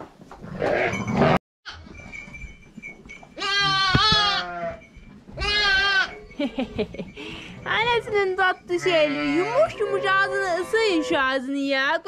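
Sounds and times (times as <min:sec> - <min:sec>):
sheep bleating: 0:03.4 - 0:04.8, 0:05.4 - 0:06.2, 0:08.7 - 0:11.1.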